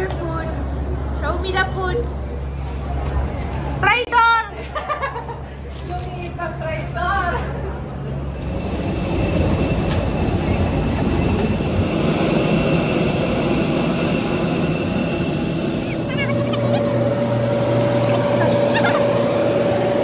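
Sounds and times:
aircraft engines whining: 7.6s - 20.0s.

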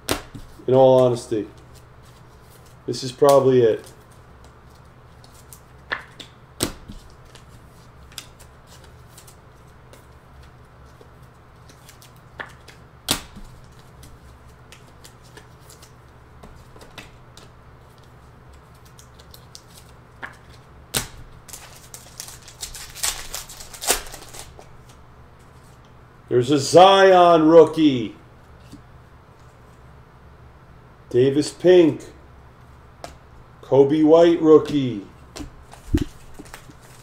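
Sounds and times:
foil pack tearing: 21.5s - 24.6s.

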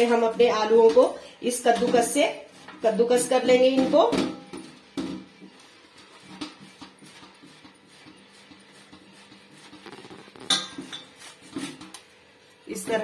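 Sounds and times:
potato scraping on grater: 6.1s - 11.9s.

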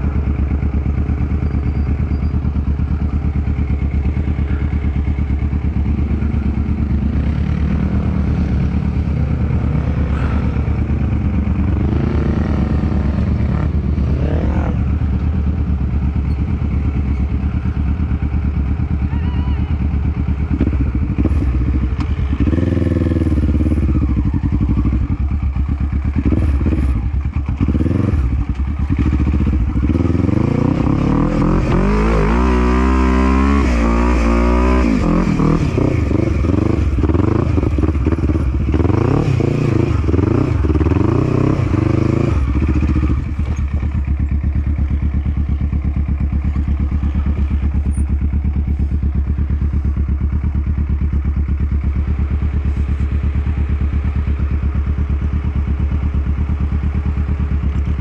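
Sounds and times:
quad engine revving: 11.7s - 15.2s, 26.2s - 43.9s.

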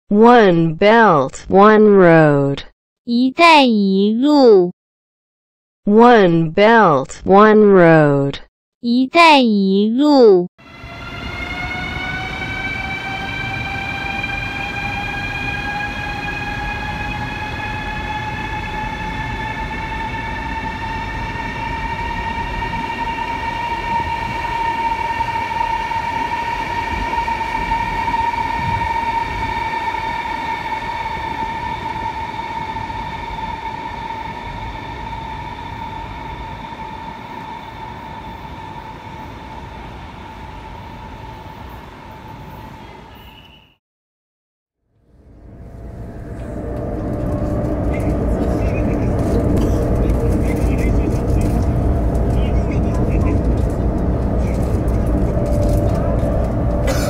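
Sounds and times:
electric train motors whining: 10.6s - 42.8s, 45.2s - 57.0s
wheels rumbling on rails: 10.6s - 43.4s, 45.0s - 57.0s.

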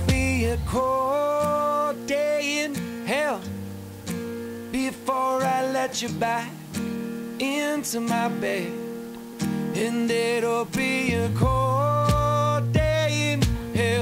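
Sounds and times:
country song with acoustic guitar: 0.0s - 14.0s.

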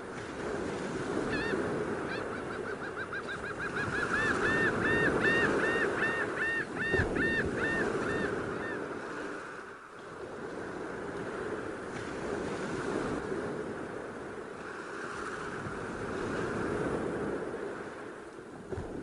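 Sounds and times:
surf washing: 0.0s - 19.0s
curlew whistled calls: 1.3s - 8.8s.

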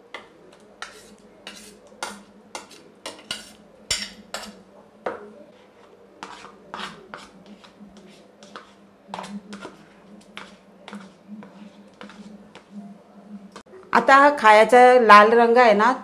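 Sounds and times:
metal spoon scraping and clinking: 0.8s - 4.6s.

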